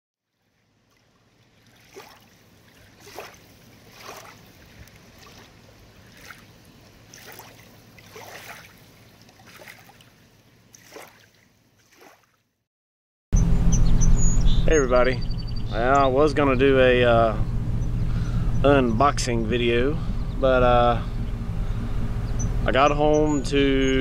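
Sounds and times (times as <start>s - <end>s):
small waves lapping and splashing: 0.2s - 12.6s.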